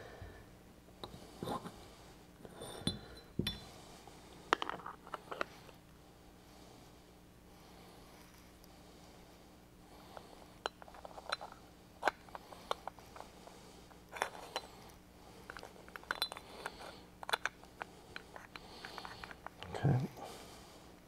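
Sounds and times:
small metal parts clicking: 0:15.5 - 0:19.8.

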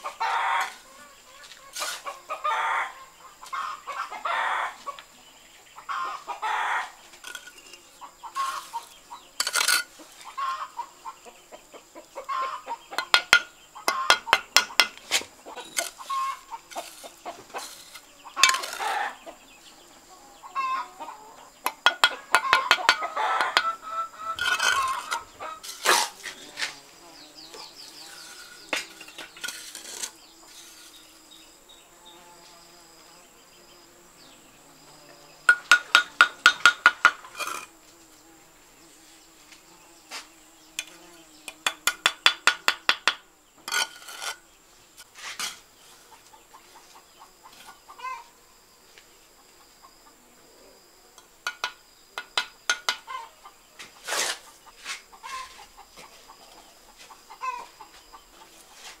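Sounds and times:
high insect drone: 0:00.0 - 0:59.0
trowel tapping bricks: 0:07.2 - 0:07.8, 0:09.4 - 0:09.9, 0:13.0 - 0:19.0, 0:21.6 - 0:23.8, 0:24.4 - 0:26.8, 0:28.2 - 0:30.9, 0:35.5 - 0:37.7, 0:40.8 - 0:44.4, 0:51.2 - 0:53.1.

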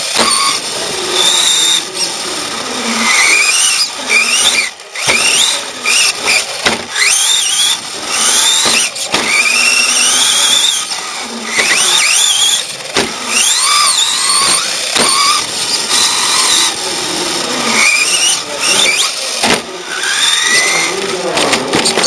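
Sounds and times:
toy truck motor whining: 0:00.0 - 0:22.0
sharp knocks: 0:06.6 - 0:07.0, 0:12.9 - 0:13.2, 0:19.4 - 0:19.7.

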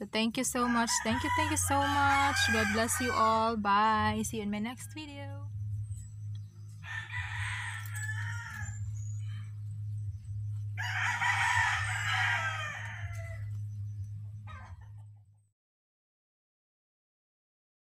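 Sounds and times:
steady low hum: 0:00.0 - 0:15.4
rooster crowing: 0:00.6 - 0:03.4, 0:06.8 - 0:09.6, 0:10.8 - 0:13.7.

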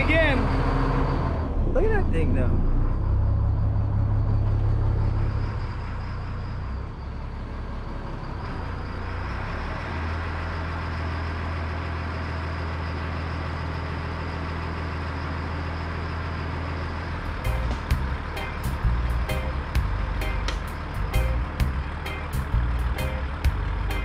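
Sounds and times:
boat diesel engine humming: 0:00.0 - 0:24.0.

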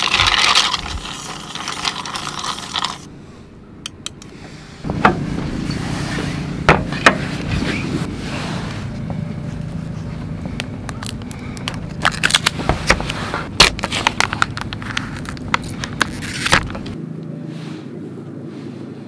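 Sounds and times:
steady low rumble: 0:02.8 - 0:19.0
plastic lid crackling: 0:10.9 - 0:17.0.

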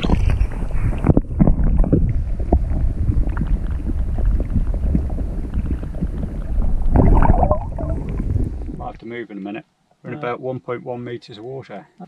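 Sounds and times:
muffled underwater rumble: 0:00.0 - 0:09.0.

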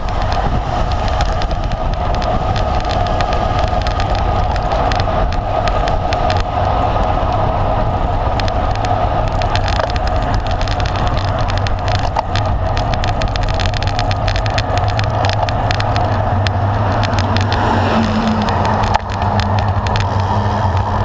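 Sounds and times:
wind and road noise: 0:00.0 - 0:21.0.

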